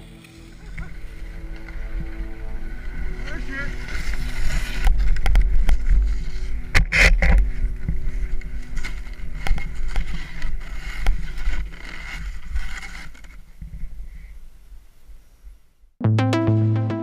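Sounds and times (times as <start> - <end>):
low wind rumble: 0.4 - 12.8.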